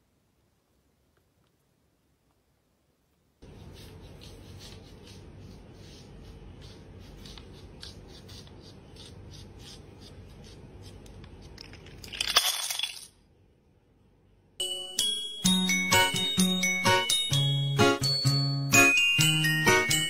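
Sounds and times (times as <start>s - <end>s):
plastic blocks clattering on floor: 11.6s - 13.2s.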